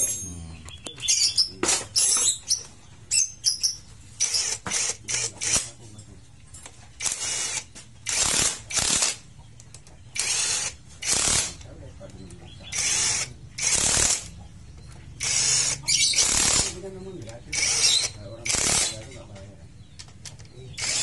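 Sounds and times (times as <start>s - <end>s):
cordless drill driving bolts: 7.0s - 9.2s, 10.2s - 11.6s, 12.7s - 14.3s, 15.2s - 16.8s, 17.5s - 19.0s, 20.8s - 21.0s.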